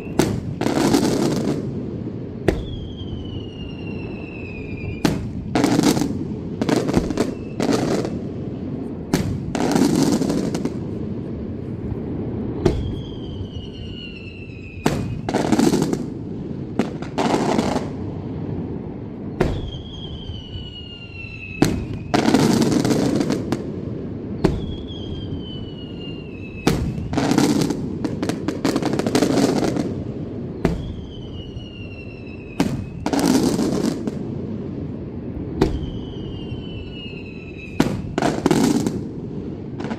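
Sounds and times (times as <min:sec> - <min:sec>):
falling whistle: 0:00.0 - 0:00.3, 0:02.5 - 0:05.2, 0:07.1 - 0:07.9, 0:12.6 - 0:15.6, 0:19.3 - 0:22.5, 0:24.4 - 0:27.4, 0:30.6 - 0:33.2, 0:35.6 - 0:38.2
fireworks bursting with loud bangs: 0:00.0 - 0:39.9.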